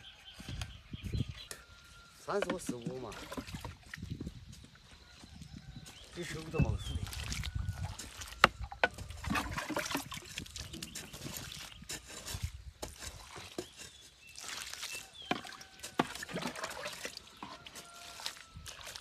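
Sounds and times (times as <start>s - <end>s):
ladle knocking plastic bucket: 2.3s - 3.8s, 7.9s - 11.3s
water splashing into soil: 2.3s - 4.2s, 6.1s - 19.0s.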